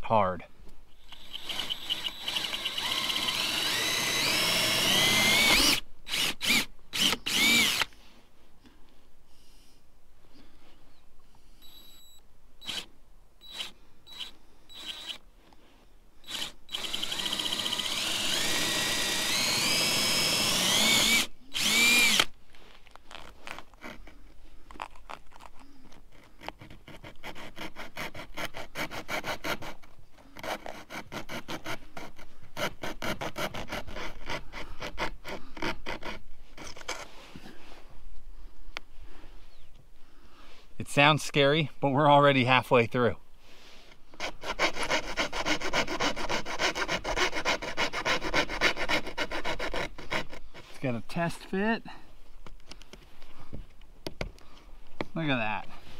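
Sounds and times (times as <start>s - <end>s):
cordless drill boring: 1.1s - 7.9s, 11.6s - 15.2s, 16.2s - 22.4s
hand saw rasping: 16.3s - 22.3s, 26.1s - 37.1s, 44.2s - 51.4s.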